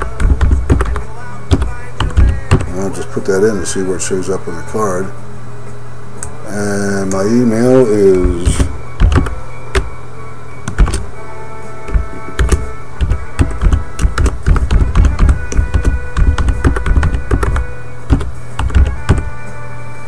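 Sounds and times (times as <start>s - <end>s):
background music with sustained tones: 0.0s - 20.0s.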